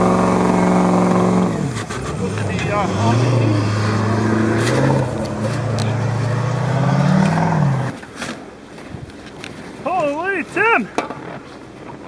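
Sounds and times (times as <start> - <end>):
pickup truck engine under load: 0.0 - 8.6.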